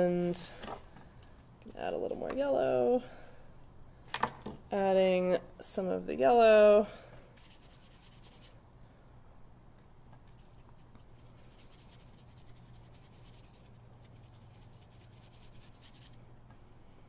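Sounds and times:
low room hum: 0.0 - 17.0
paintbrush strokes on paper: 7.4 - 8.6, 10.2 - 16.2.

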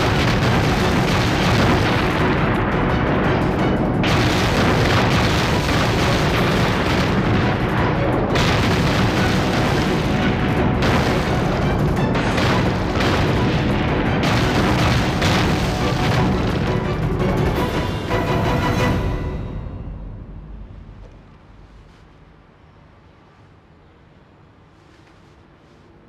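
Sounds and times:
shell explosions: 0.0 - 18.1
dramatic film music: 0.0 - 21.6.

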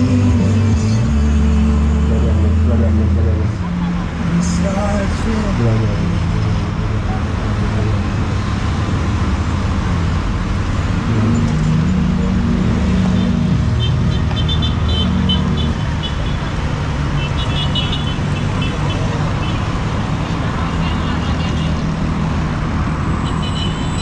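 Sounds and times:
road noise: 0.0 - 24.0
vehicle engine rumble: 0.0 - 24.0.

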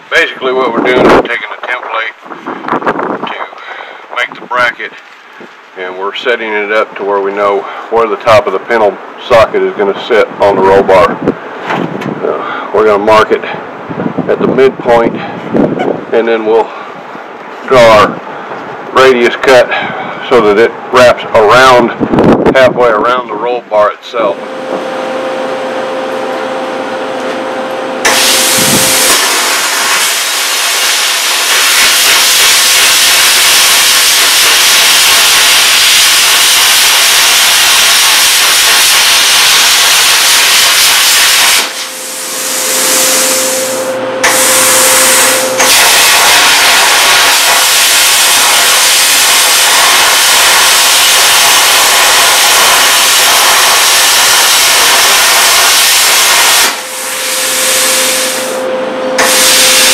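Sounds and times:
steady hum: 23.2 - 59.9
plasma cutter arc hissing: 28.0 - 58.6, 59.2 - 59.9.

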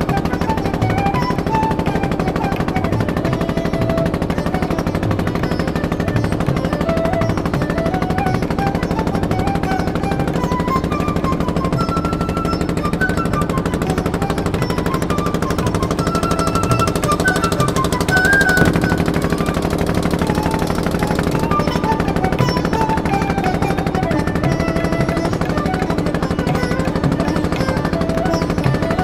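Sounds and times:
boat diesel engine chugging: 0.0 - 29.0
tune of short notes: 18.3 - 20.8.

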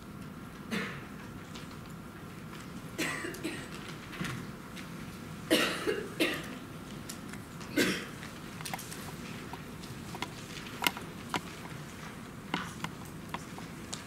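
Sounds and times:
room hum: 0.0 - 14.0
people coughing: 0.7 - 1.1, 3.0 - 3.8, 5.5 - 6.7, 7.7 - 8.2.

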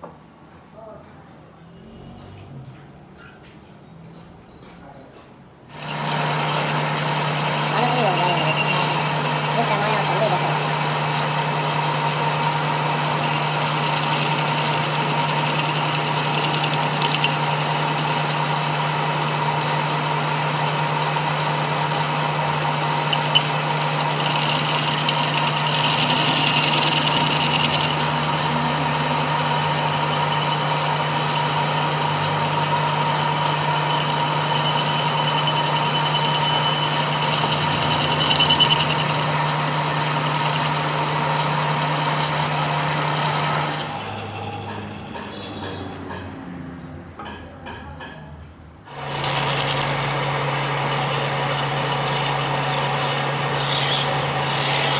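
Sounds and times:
high-pitched cutting squeal: 5.7 - 39.4, 48.9 - 54.9
metal lathe motor hum: 5.7 - 45.3, 48.9 - 54.9.

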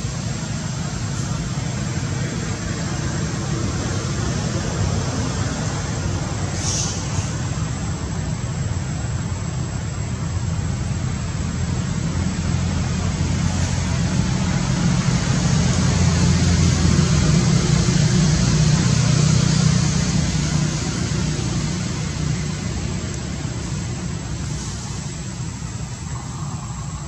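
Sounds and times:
hiss: 0.0 - 27.0
motor vehicle rumble: 0.0 - 27.0.

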